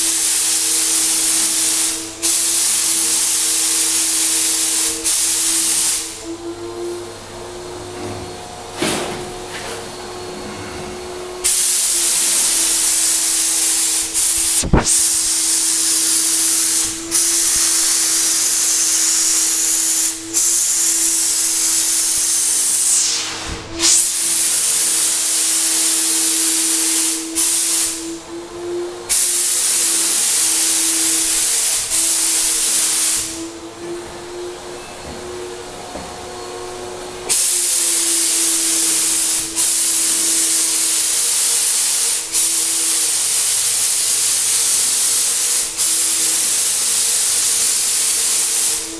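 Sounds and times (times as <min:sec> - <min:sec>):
spray gun hissing: 0:00.0 - 0:06.2, 0:11.4 - 0:28.1, 0:29.1 - 0:33.4, 0:37.3 - 0:48.9.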